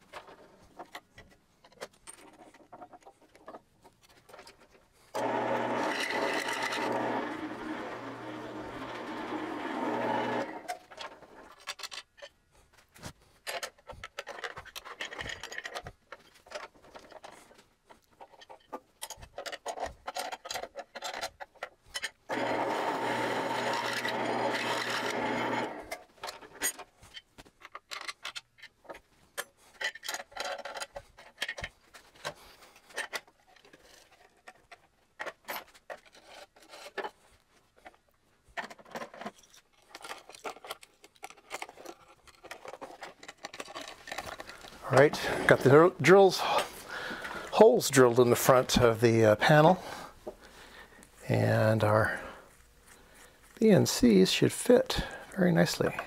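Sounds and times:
drill press cutting metal: 0:05.2 - 0:10.8, 0:22.3 - 0:25.9
box scraping and clicking: 0:29.8 - 0:37.3, 0:38.6 - 0:47.6.

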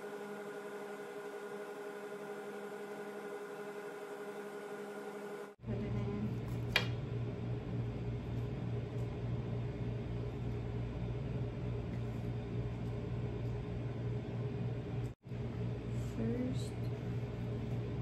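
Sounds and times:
steady low hum: 0:05.4 - 0:18.0.

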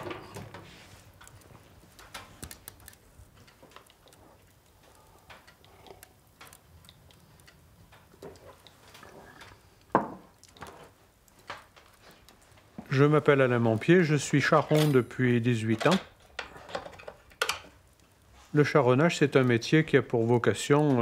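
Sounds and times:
small clicks and knocks: 0:00.0 - 0:12.9, 0:15.7 - 0:18.1
mug set down on counter: 0:10.0 - 0:10.3.

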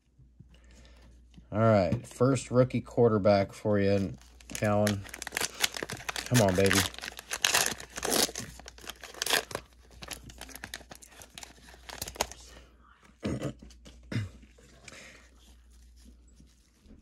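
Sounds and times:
cards rustling: 0:03.7 - 0:12.6
plastic wrapper crinkling and tearing: 0:03.8 - 0:12.6.

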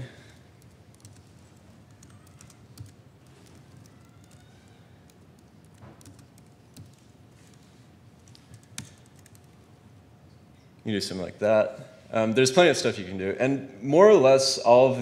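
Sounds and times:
laptop keyboard typing: 0:00.4 - 0:09.7.

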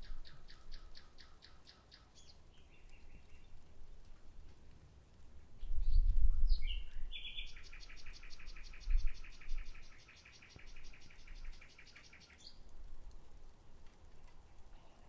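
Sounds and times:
nightingale singing: 0:00.0 - 0:03.5, 0:05.6 - 0:12.6.

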